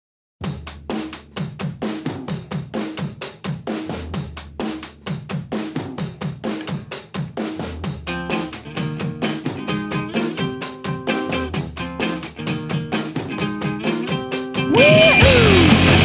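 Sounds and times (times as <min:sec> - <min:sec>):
drum kit playing fast beat: 0:00.4 - 0:16.0.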